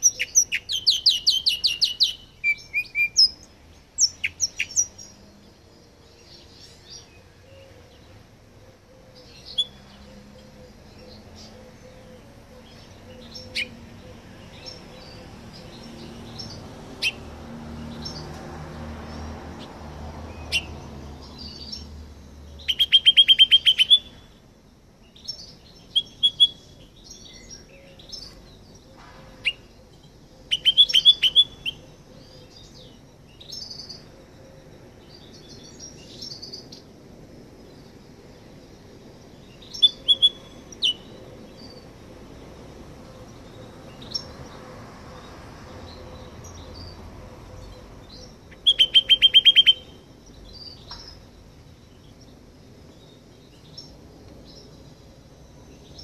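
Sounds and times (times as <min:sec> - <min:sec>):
finch singing trills: 0:00.0 - 0:05.2, 0:08.9 - 0:17.2, 0:22.5 - 0:24.3, 0:25.1 - 0:34.1, 0:39.5 - 0:41.9, 0:47.6 - 0:51.2.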